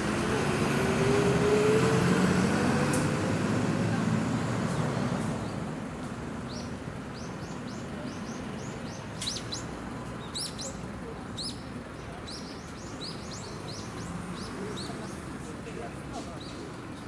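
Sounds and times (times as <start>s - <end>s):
small birds chirping: 6.4s - 15.4s.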